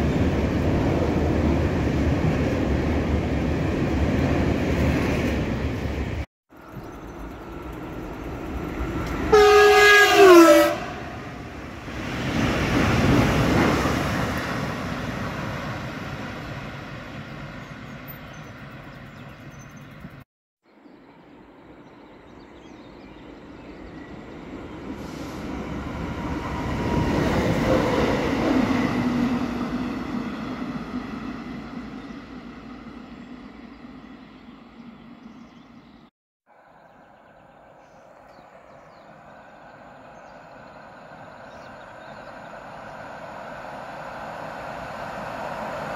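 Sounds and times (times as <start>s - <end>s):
train passing on rails: 0.0s - 20.2s, 21.0s - 45.9s
train horn chord: 9.3s - 11.4s.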